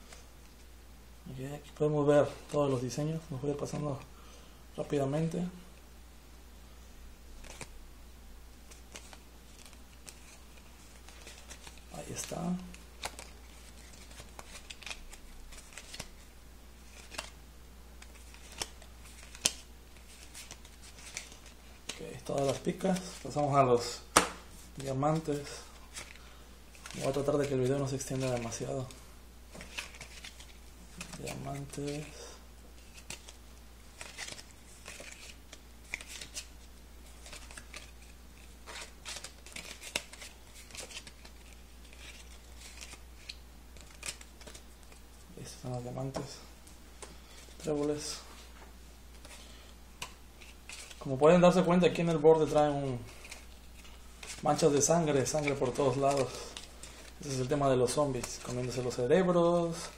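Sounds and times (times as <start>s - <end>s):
playing cards rustling: 7.4s - 7.7s, 8.6s - 17.4s, 18.0s - 59.9s
sharp card snaps: 24.1s - 24.5s.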